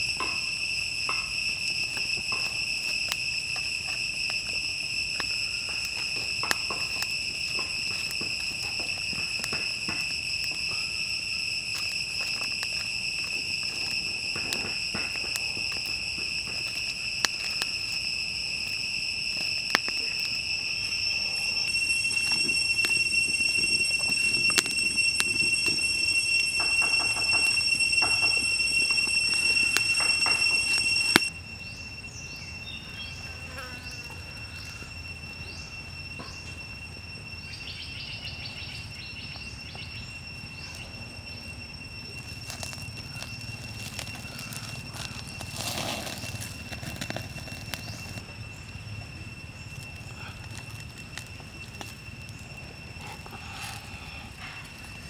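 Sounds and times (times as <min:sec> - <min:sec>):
crackling wood fire clicks: 0:00.0 - 0:31.3, 0:42.1 - 0:48.3, 0:49.7 - 0:52.5
high-pitched insect drone: 0:00.0 - 0:55.0.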